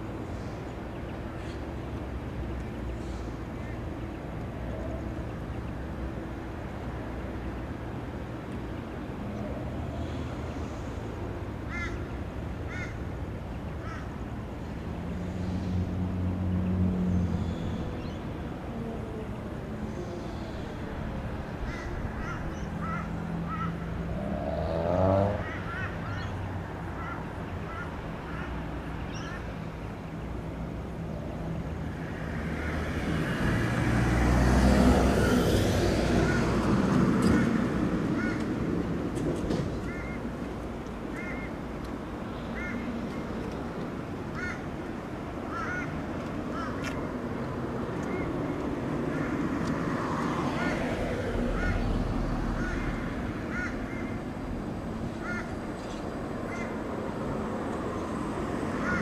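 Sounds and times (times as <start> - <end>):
bird cawing: 11.7 - 13.0, 13.7 - 14.2, 21.6 - 23.9, 25.4 - 29.5, 36.1 - 36.5, 38.2 - 38.5, 39.8 - 40.2, 41.1 - 41.6, 42.4 - 43.0, 44.3 - 44.7, 45.5 - 47.0, 50.3 - 54.3, 55.1 - 56.8, 58.8 - 59.0
vehicle passing: 14.7 - 40.7, 42.0 - 59.0
birds chirping: 25.4 - 30.4.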